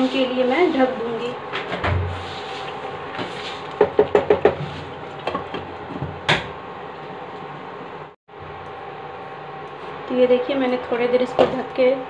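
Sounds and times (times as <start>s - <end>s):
spatula knocking on frying pan: 3.8s - 4.6s.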